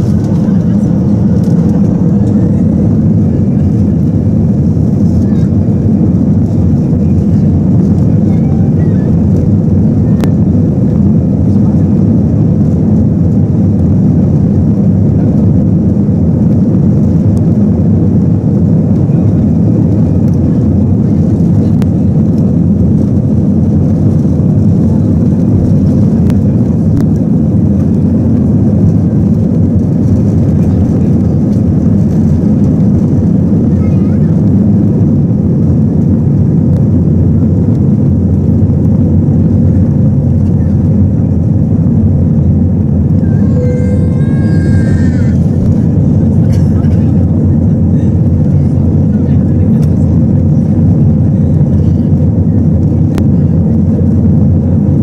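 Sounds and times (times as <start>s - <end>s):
jet engines roaring: 0.0s - 55.0s.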